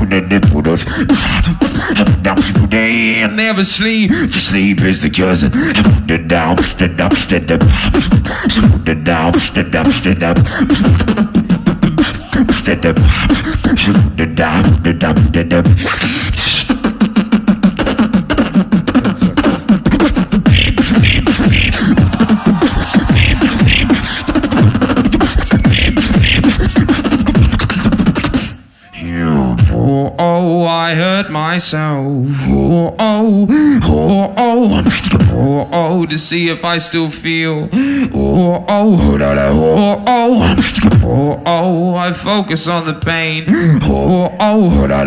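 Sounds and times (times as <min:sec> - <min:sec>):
person beatboxing: 0:00.0 - 0:36.4, 0:37.6 - 0:45.0
pitched vocal tone sliding downward: 0:15.8 - 0:28.2.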